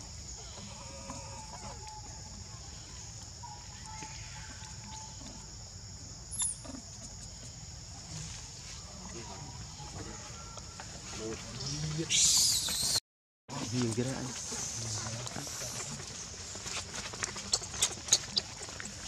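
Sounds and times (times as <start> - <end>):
faint drawn-out animal calls: 0.0 - 5.5.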